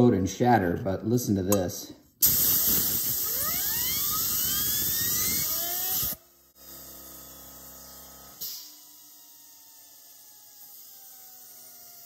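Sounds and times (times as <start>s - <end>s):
compressed air hissing: 2.2s - 6.2s
fidget spinner whine: 2.3s - 12.0s.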